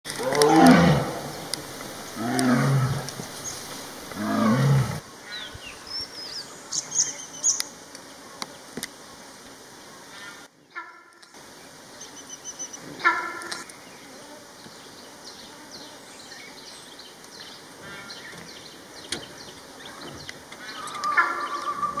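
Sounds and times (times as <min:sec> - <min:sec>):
birds chirping: 0:00.0 - 0:08.7, 0:11.4 - 0:22.0
tiger roaring: 0:00.1 - 0:05.0.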